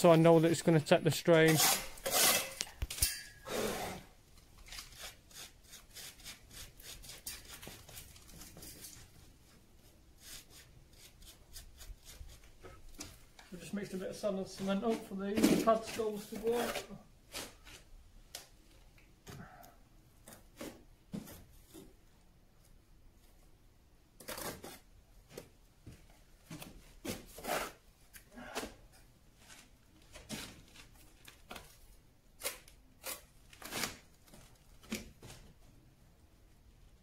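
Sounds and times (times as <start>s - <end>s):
trowel scraping mortar: 1.4s - 2.8s.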